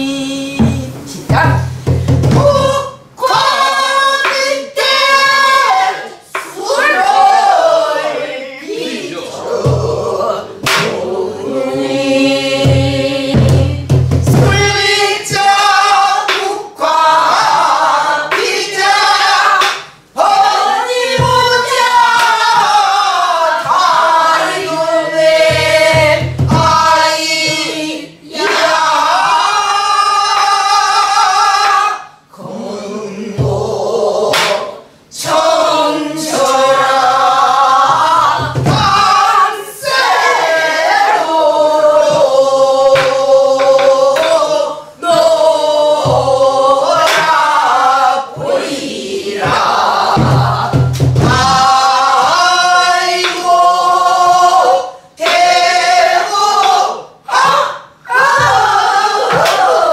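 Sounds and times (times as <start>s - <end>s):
voices singing folk song: 0.0s - 59.9s.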